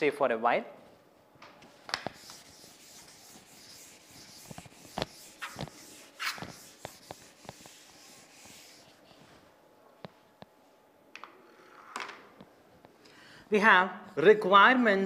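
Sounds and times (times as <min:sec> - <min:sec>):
duster wiping blackboard: 0:01.9 - 0:09.4.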